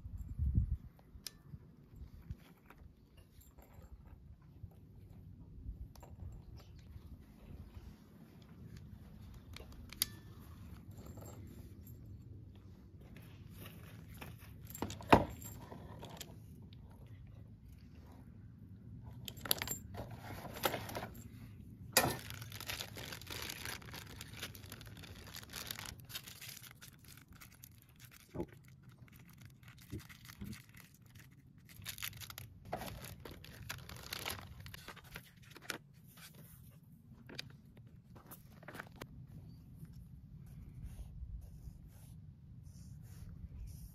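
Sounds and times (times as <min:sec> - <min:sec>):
plastic packaging crinkling and tearing: 0:22.0 - 0:35.9.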